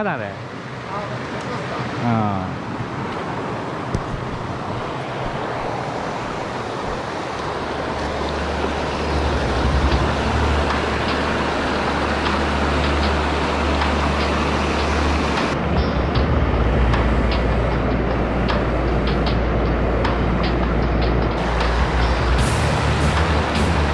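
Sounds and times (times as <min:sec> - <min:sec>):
stream rushing over boulders: 0:00.6 - 0:15.6, 0:21.4 - 0:23.9.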